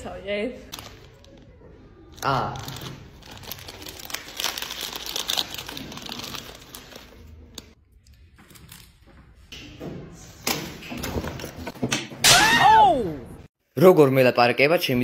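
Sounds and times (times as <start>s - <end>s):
plastic snack packet crinkling: 0.7s - 7.8s.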